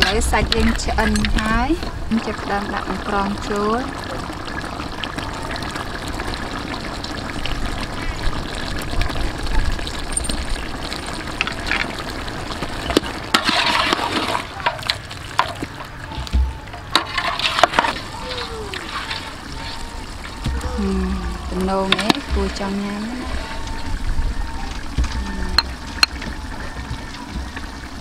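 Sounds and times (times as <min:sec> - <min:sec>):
curry bubbling in a pot: 0:00.0 - 0:28.0
metal ladle scraping a pot: 0:12.8 - 0:15.9, 0:16.9 - 0:18.1, 0:18.8 - 0:20.1.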